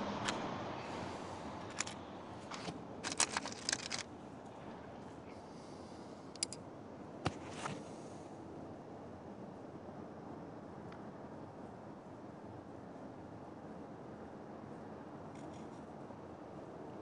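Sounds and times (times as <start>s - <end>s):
faint steady background noise: 0.0s - 17.0s
stones clicking and rattling: 1.6s - 4.1s.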